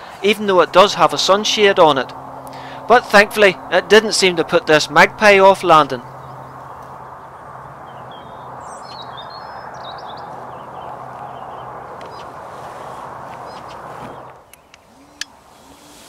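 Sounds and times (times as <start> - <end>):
small birds chirping: 5.5 - 16.0.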